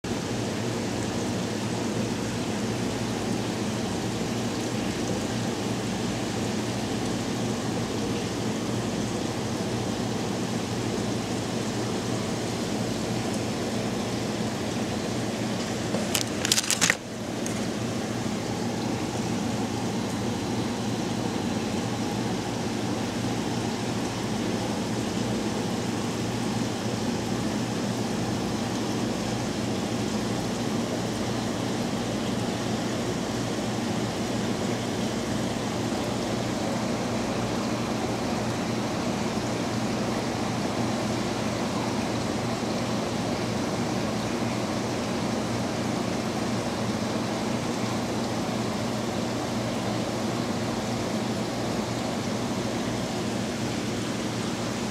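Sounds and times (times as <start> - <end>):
room noise hum and hiss: 0.0 - 54.9
plastic package crinkling: 15.6 - 17.7.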